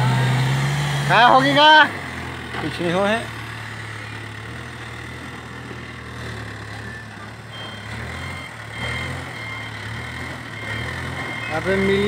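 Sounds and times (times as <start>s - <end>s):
diesel engine working: 0.0s - 12.0s
short high beeps: 6.8s - 12.0s.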